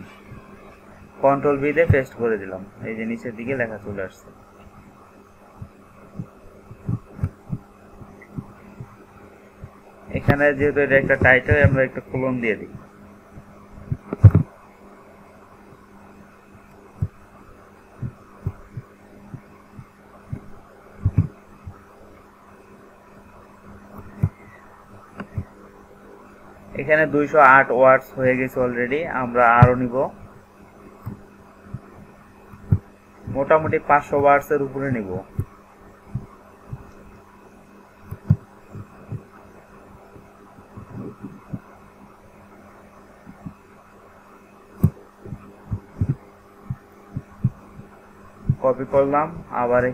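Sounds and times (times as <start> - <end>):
low electrical hum: 0.0 - 49.9
soft low thumps: 5.5 - 11.9, 12.6 - 14.6, 17.0 - 17.3, 18.0 - 21.9, 29.5 - 30.4, 31.0 - 33.8, 35.2 - 37.2, 38.0 - 41.8, 43.2 - 43.6, 44.8 - 48.8.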